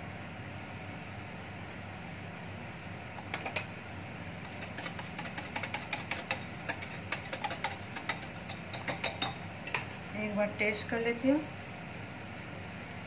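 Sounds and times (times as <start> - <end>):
spoon clinking in glass bowl: 4.5 - 9.4.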